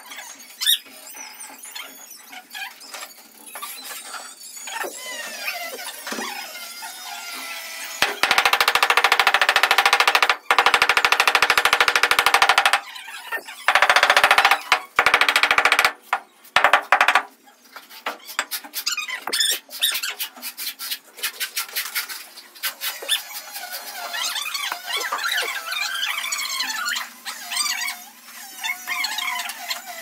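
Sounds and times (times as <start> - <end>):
scattered taps and knocks: 8.0 - 12.8, 13.7 - 17.3
wooden pole ramming stone floor: 8.0 - 12.8, 13.7 - 17.3.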